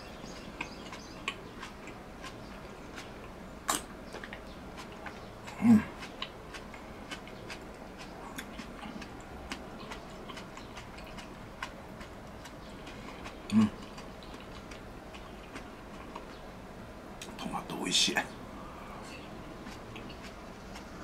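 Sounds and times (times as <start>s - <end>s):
low throat sounds: 5.5s - 6.0s, 13.5s - 13.9s
chewing and chopstick clicks: 6.0s - 12.6s.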